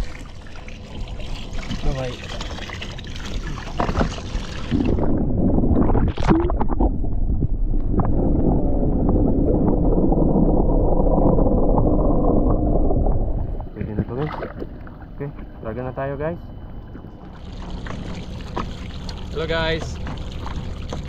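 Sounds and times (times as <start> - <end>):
water splashing: 0.0 - 5.1, 9.0 - 15.0, 17.2 - 21.0
muffled underwater rumble: 0.0 - 21.0
knocks of moving water: 0.8 - 5.1, 17.3 - 21.0.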